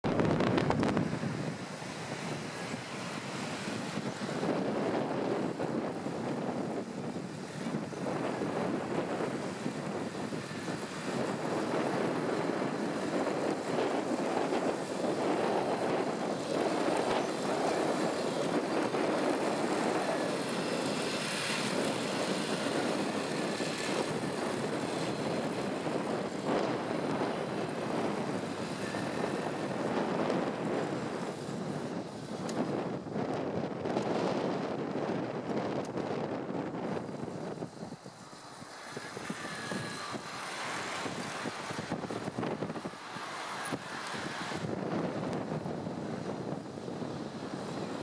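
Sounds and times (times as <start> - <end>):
model tank mechanical drone: 0.1 - 48.0.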